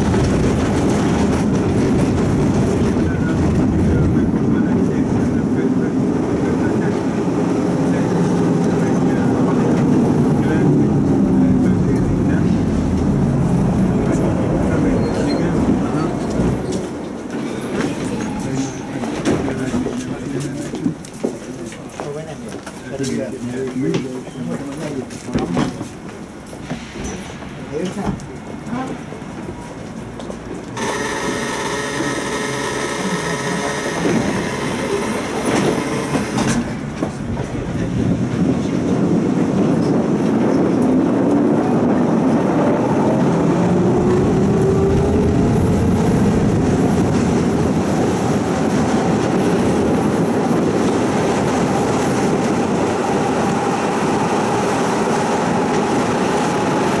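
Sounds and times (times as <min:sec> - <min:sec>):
wheels rumbling on rails: 0:00.0 - 0:57.0
tram motor whine: 0:28.1 - 0:37.5, 0:41.7 - 0:57.0.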